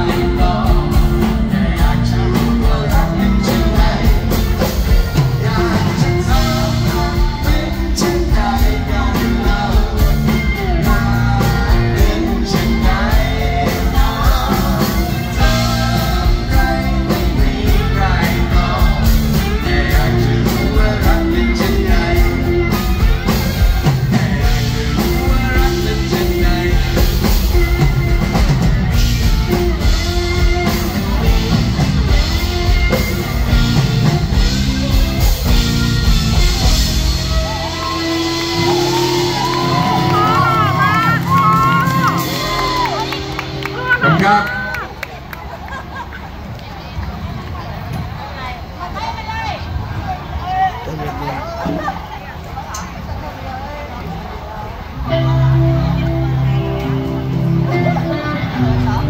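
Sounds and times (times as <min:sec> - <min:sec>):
man singing: 0:00.0 - 0:35.6
drums: 0:00.0 - 0:59.0.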